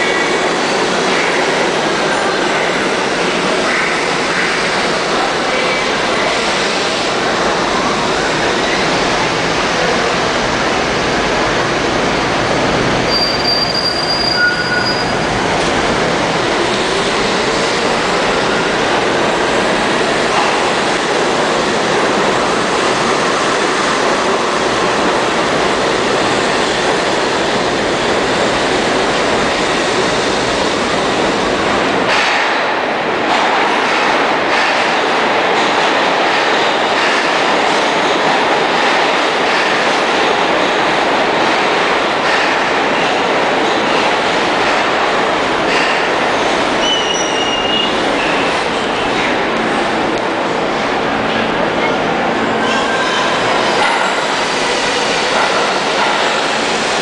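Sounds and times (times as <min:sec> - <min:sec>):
train wheels rumbling on rails: 0:00.0 - 0:57.0
high wheel squeal: 0:13.1 - 0:15.3, 0:46.8 - 0:48.5.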